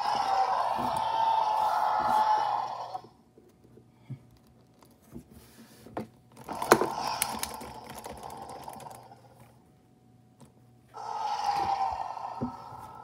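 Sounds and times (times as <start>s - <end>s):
recorded toy roar: 0.0s - 3.2s, 6.5s - 9.4s, 10.9s - 13.0s
plastic toy clicks: 6.4s - 9.1s.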